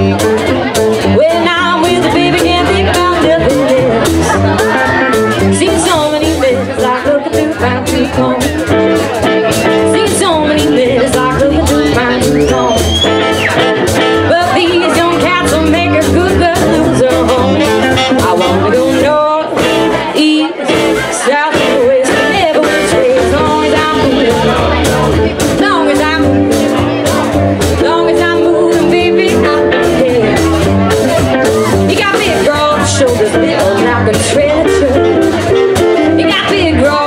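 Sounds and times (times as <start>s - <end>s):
drum kit: 0.0s - 37.0s
guitar: 0.0s - 37.0s
upright bass: 0.0s - 37.0s
woman singing: 1.0s - 8.8s, 9.6s - 13.2s, 14.0s - 30.7s, 31.8s - 37.0s
saxophone: 16.3s - 19.0s.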